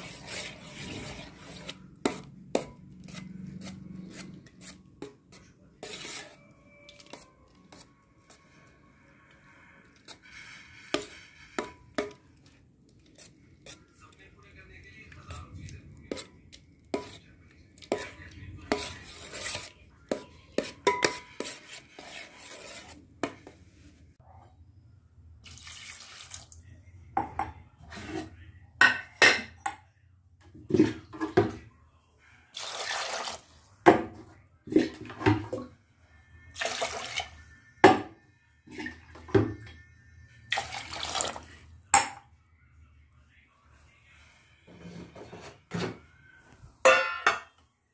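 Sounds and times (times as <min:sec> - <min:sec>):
buttermilk sloshing and splashing: 0:00.0 - 0:08.7, 0:09.8 - 0:23.0, 0:25.4 - 0:26.6, 0:32.5 - 0:33.8, 0:40.5 - 0:41.6.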